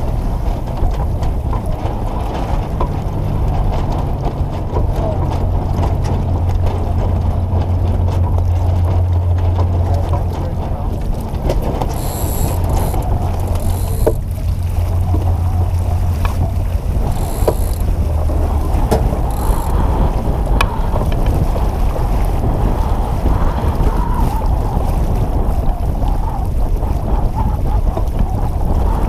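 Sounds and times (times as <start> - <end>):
water rushing past a hull: 0.0 - 29.0
wind buffeting the microphone: 0.0 - 29.0
winch ratcheting: 1.0 - 20.2.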